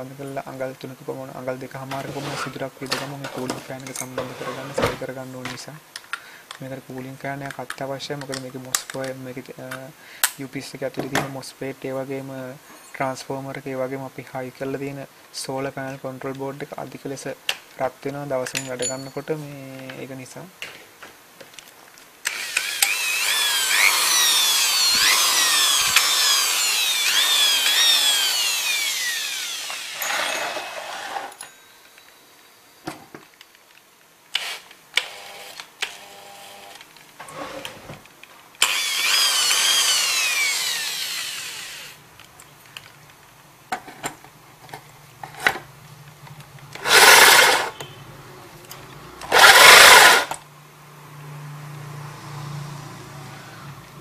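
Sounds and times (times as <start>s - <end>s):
electric drill whining: 22.2s - 31.4s, 34.4s - 36.8s, 38.6s - 42.0s, 46.8s - 47.8s, 49.3s - 50.4s
hole saw cutting plastic: 22.2s - 31.4s, 38.6s - 42.0s, 46.8s - 47.8s, 49.2s - 50.4s.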